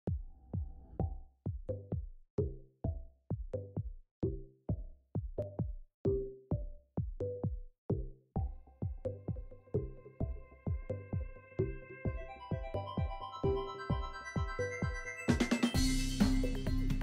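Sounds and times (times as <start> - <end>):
drum machine beat: 0.0 - 17.0
electronic music: 8.5 - 17.0.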